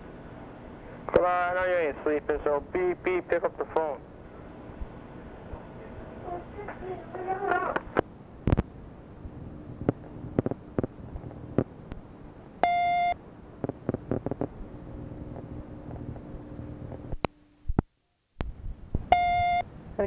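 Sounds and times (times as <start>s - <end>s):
phone line hum and hiss: 0.0s - 20.0s
answering machine beep: 12.6s - 13.2s, 19.1s - 19.7s.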